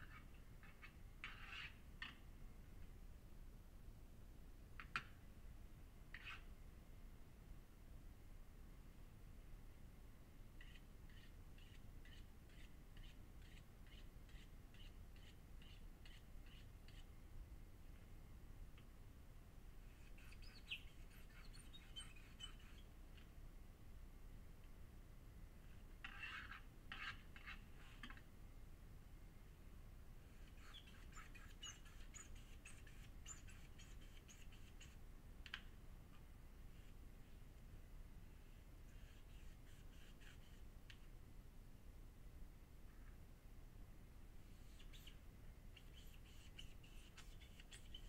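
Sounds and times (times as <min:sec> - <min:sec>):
distant bird calling: 0:19.8 - 0:23.3, 0:44.5 - 0:48.0.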